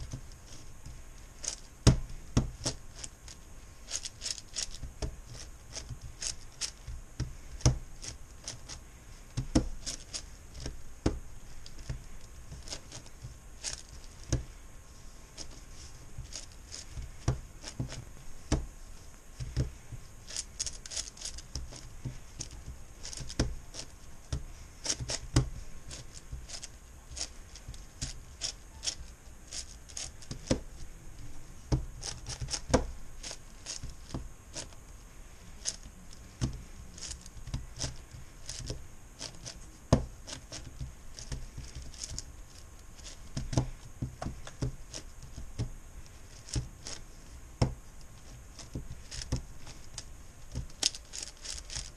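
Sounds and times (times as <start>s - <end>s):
plastic pieces sliding: 11.5s - 18.6s, 19.4s - 24.0s, 48.2s - 51.9s.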